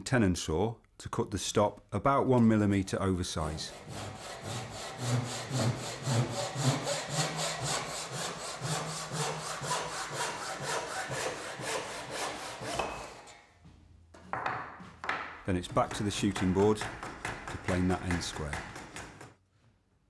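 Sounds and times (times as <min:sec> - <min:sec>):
hand saw cutting wood: 0:03.5 - 0:13.4, 0:15.6 - 0:19.4.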